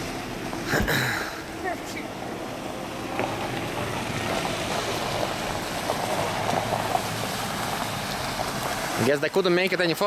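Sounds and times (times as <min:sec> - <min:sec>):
vehicle engine and tyres rushing: 0:00.0 - 0:10.0.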